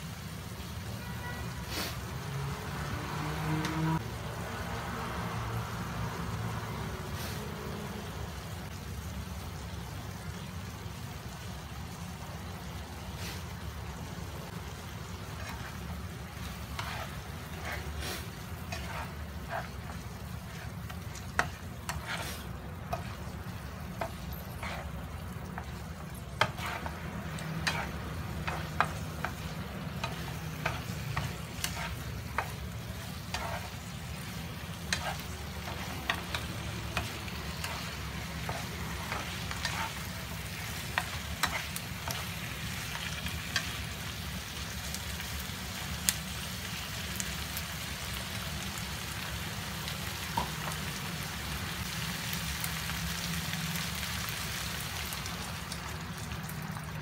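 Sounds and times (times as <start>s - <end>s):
chicken and onion frying: 0.0s - 57.0s
spatula scraping a pan: 15.1s - 43.8s.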